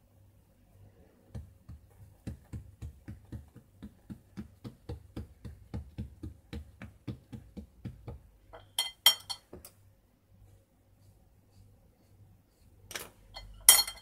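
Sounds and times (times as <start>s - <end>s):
fingertips patting dough: 1.2s - 9.7s.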